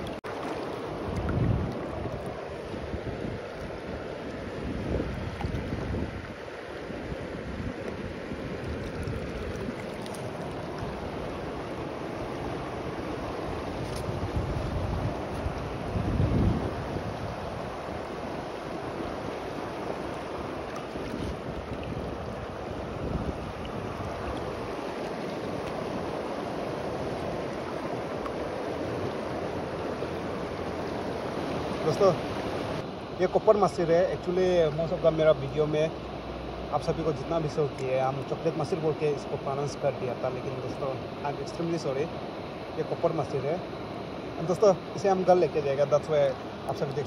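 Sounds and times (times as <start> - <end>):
river water rushing: 0.0 - 47.0
wind buffeting microphone: 1.0 - 27.5.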